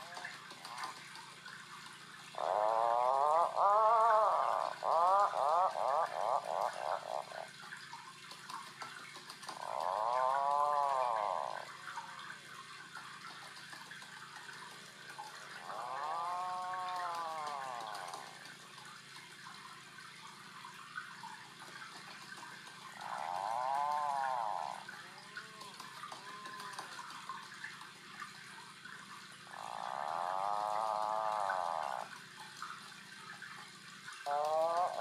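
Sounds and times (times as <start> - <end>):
puffins calling: 2.4 - 7.5, 34.3 - 35.0.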